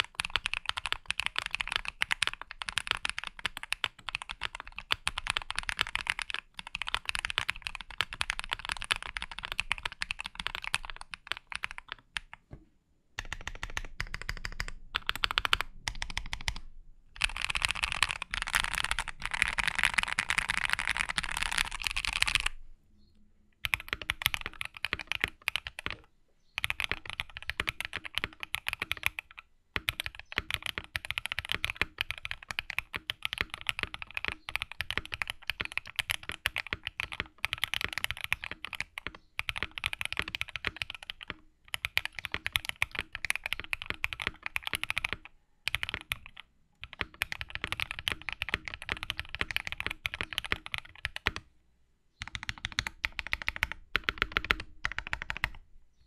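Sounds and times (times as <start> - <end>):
mechanical keyboard typing: 0.0 - 12.4, 13.2 - 22.6, 23.6 - 51.5, 52.2 - 55.6.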